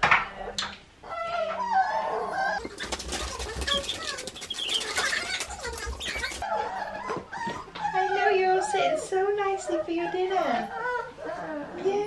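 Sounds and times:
puppies whining and squeaking: 1.0s - 8.9s, 9.8s - 12.0s
paws scrabbling on fabric: 2.6s - 7.7s.

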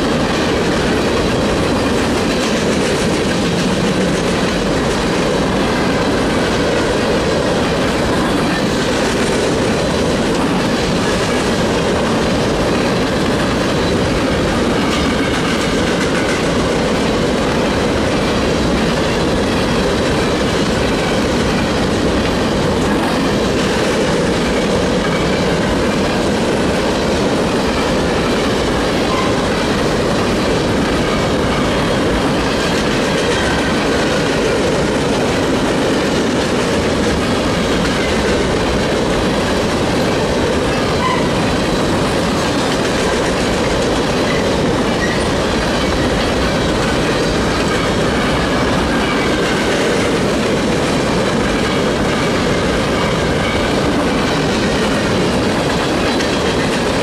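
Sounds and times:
train wheels clattering on rails: 0.0s - 57.0s.

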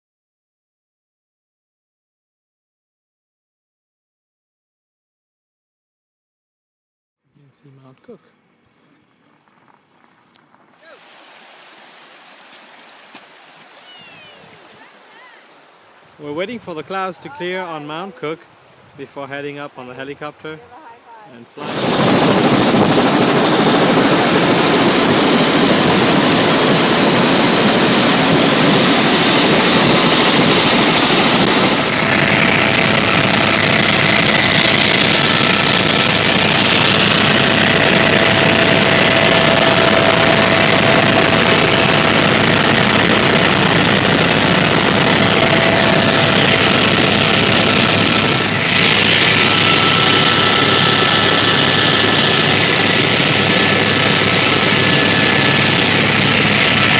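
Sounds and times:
helicopter engine and rotors: 21.6s - 56.9s.

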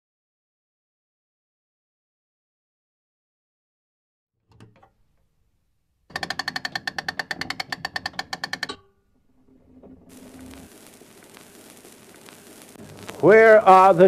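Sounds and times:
gramophone crank ratchet clicking: 6.1s - 8.9s
knocks on gramophone: 6.1s - 8.9s
faint hum: 9.2s - 14.0s.

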